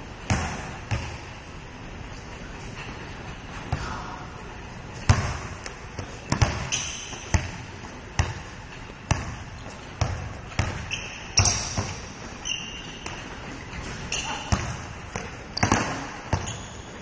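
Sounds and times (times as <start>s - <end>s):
basketball bouncing on gym floor: 0.2s - 1.3s, 5.0s - 17.0s
shoe squeaks: 6.6s - 7.3s, 10.6s - 14.6s, 15.5s - 17.0s.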